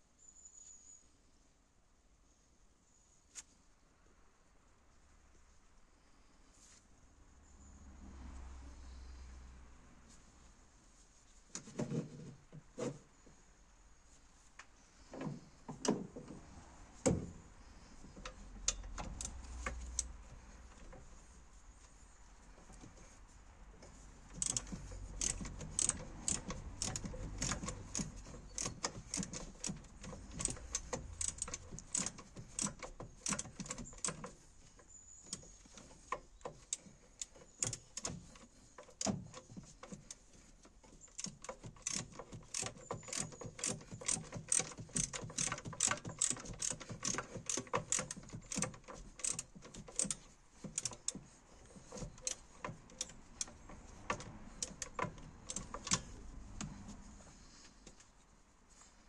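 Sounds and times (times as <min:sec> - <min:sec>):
ratchet wrench clicking: 0:18.2 - 0:20.1, 0:24.3 - 0:34.4, 0:35.3 - 0:39.2, 0:41.0 - 0:56.7.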